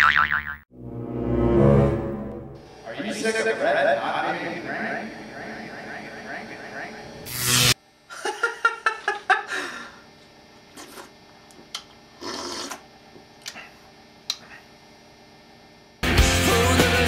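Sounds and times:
man's voice in pulsing bursts: 2.8 - 7.2
man slurping a drink: 12.1 - 12.9
loud punk rock music: 16.0 - 17.0.

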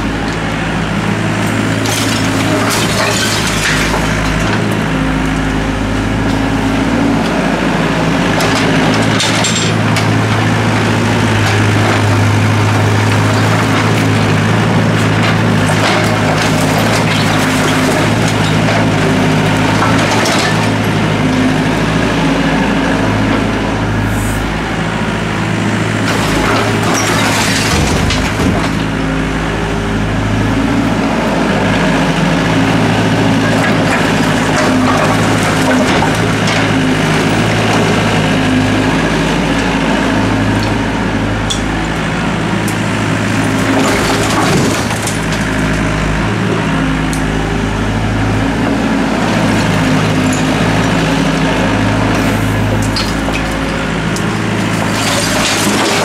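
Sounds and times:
excavator diesel engine running: 0.0 - 56.0
bricks and debris crashing: 1.4 - 4.8, 8.4 - 21.0, 26.0 - 28.9, 33.3 - 38.1, 43.2 - 46.0, 52.1 - 56.0
bucket scraping rubble: 1.7 - 4.6, 11.3 - 20.8, 26.0 - 28.8, 33.4 - 37.6, 43.3 - 45.8, 54.4 - 56.0.

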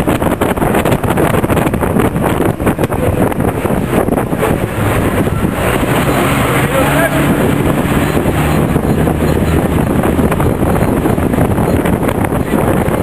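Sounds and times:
road rumble: 0.0 - 13.0
wind buffeting microphone: 0.0 - 13.0.

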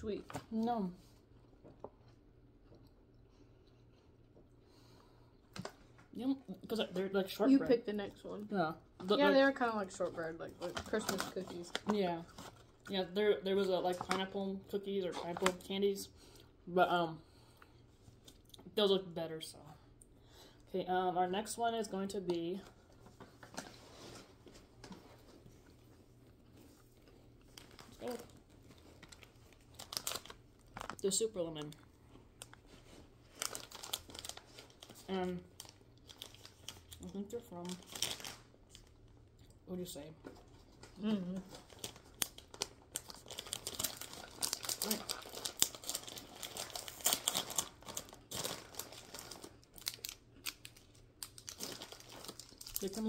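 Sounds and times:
low room hum: 0.0 - 53.0
faint chewing: 1.2 - 5.8, 24.8 - 31.0
candy wrappers crinkling: 6.6 - 16.1, 21.5 - 39.6, 40.3 - 53.0
person humming: 41.0 - 41.4.

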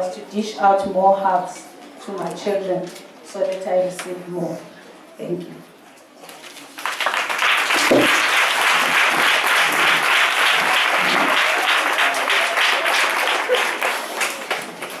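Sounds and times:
audience clapping: 6.8 - 15.0.

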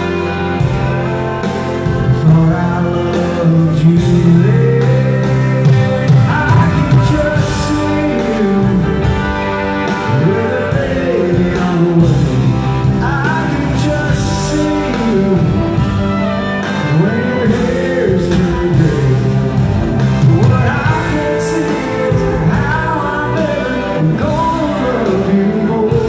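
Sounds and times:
live country band ballad: 0.0 - 26.0
person singing: 1.6 - 26.0.

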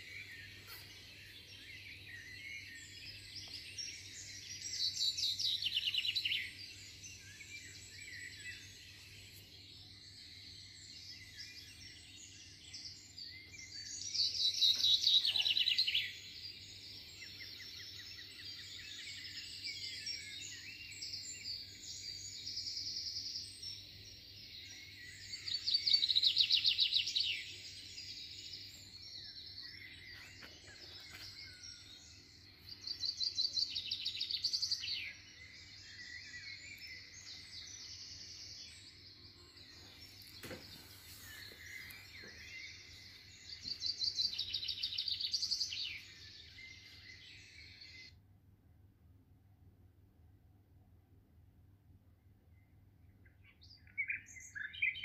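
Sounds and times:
songbirds chirping and singing: 0.0 - 48.2, 52.3 - 55.0.

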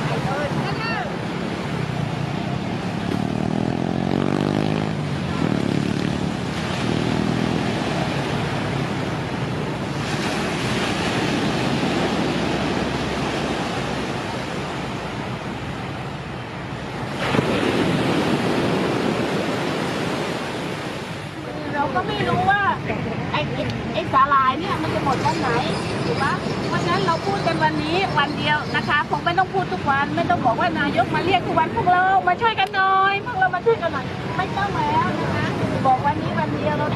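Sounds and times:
wind on microphone: 0.0 - 32.6
surf washing onto beach: 4.8 - 24.0.

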